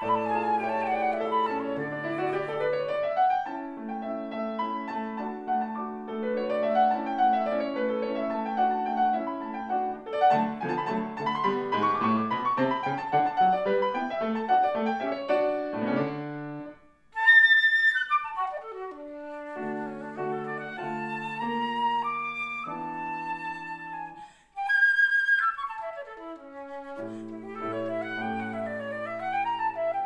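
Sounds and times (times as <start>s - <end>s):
flute melody: 0.0s - 30.0s
grand piano: 0.0s - 30.0s.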